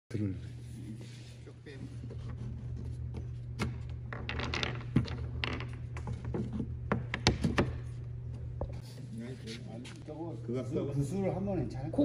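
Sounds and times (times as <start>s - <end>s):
wooden balls clacking and rolling: 2.2s - 8.8s.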